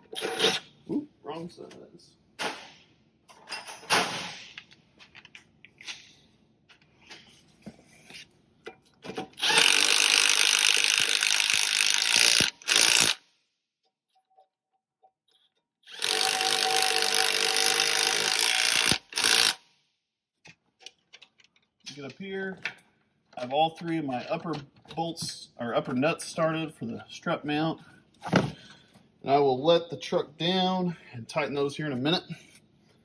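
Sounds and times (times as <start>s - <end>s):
impact wrench spinning: 9.3s - 13.3s, 15.9s - 19.6s.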